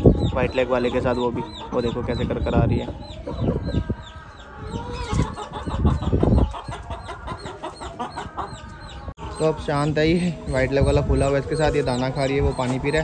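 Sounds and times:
small birds chirping: 0:00.0 - 0:13.0
hen cackling: 0:04.6 - 0:09.6.

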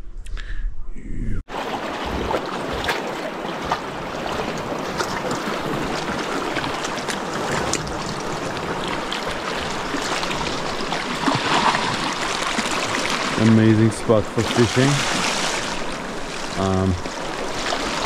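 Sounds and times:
sea waves washing on shore: 0:01.5 - 0:18.0.

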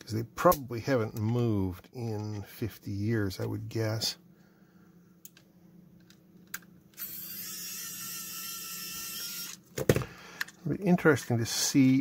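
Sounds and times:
electric screwdriver whine: 0:07.0 - 0:09.6.

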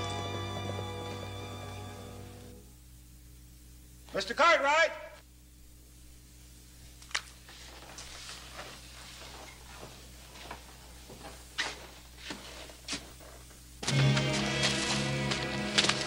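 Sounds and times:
footsteps: 0:00.0 - 0:02.5, 0:07.5 - 0:16.0
low steady hum: 0:00.0 - 0:16.0.

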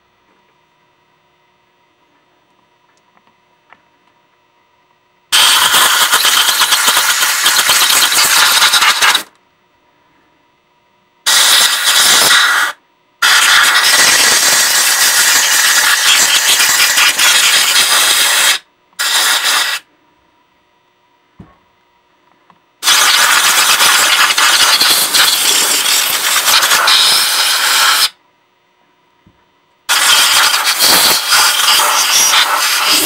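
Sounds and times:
compressed air blasts hissing: 0:05.3 - 0:09.3, 0:11.3 - 0:19.9, 0:22.8 - 0:28.2, 0:29.9 - 0:33.0.

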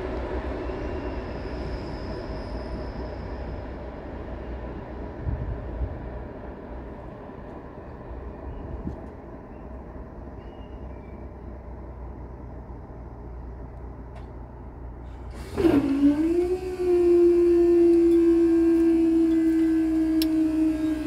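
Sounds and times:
barrier machinery hum: 0:09.3 - 0:21.0.

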